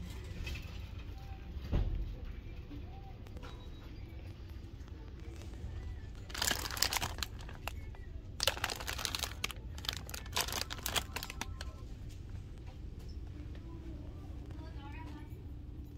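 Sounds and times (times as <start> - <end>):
steady low hum: 0.0 - 15.9
plastic wrapper crinkling: 6.0 - 11.8.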